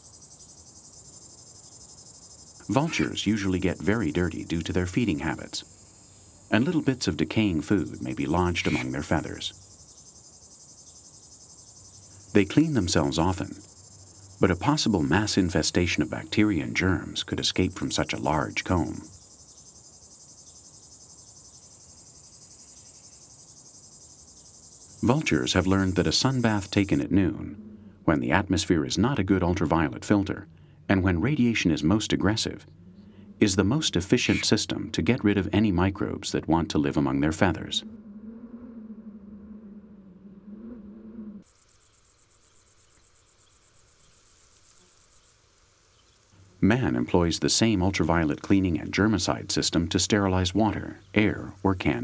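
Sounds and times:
insects chirring: 0.0s - 36.2s, 36.9s - 52.0s.

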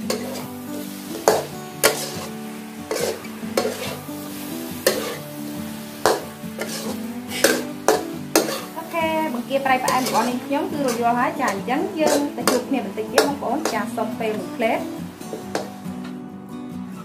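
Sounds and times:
spatula clacking against pan: 0.0s - 0.5s, 1.2s - 2.3s, 2.9s - 4.0s, 4.8s - 5.2s, 6.0s - 8.8s, 9.9s - 13.9s, 15.3s - 16.2s
metal spatula scraping: 0.0s - 14.0s
shrimp sizzling in a wok: 0.0s - 16.1s.

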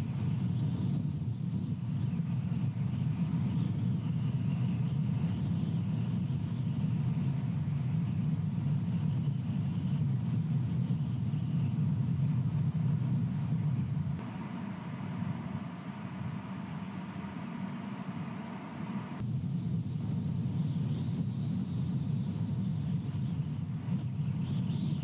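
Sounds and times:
low wind rumble: 0.0s - 25.0s
faint high whistle: 14.2s - 19.2s.

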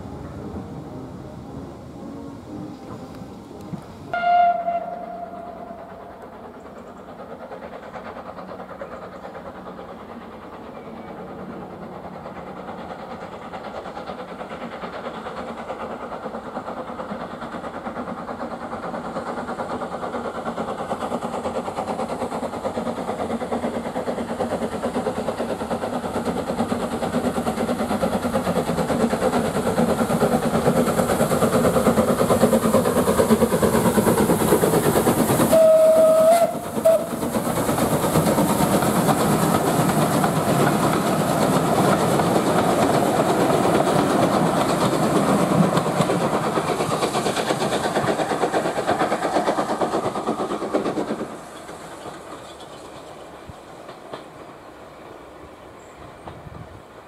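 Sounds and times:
steam train running past: 0.0s - 57.0s
steam whistle blowing: 4.1s - 6.2s, 35.5s - 37.2s.

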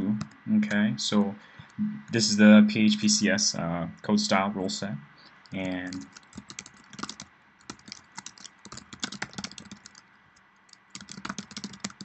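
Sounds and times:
computer keyboard typing: 5.4s - 12.0s.

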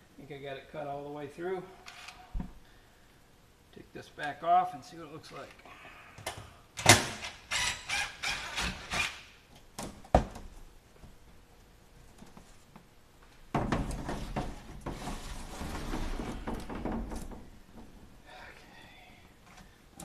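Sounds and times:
roof sheet scraping and knocking: 13.5s - 17.4s
sheet scraping and rustling: 14.0s - 16.7s.

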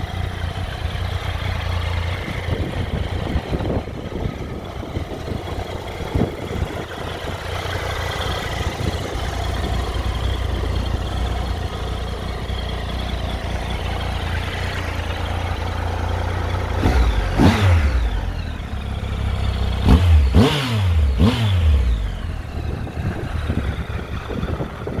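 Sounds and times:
motorcycle engine idling: 0.0s - 25.0s
engine revving in throttle blips: 16.6s - 25.0s.

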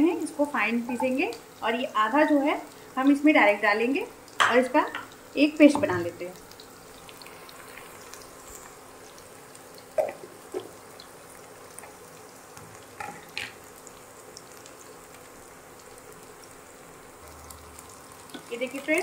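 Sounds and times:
onions frying in oil: 0.0s - 19.0s.

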